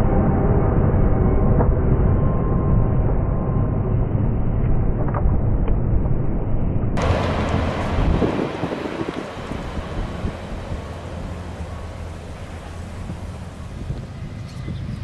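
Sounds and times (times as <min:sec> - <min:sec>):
freight train rumbling past: 0:07.0 - 0:15.0.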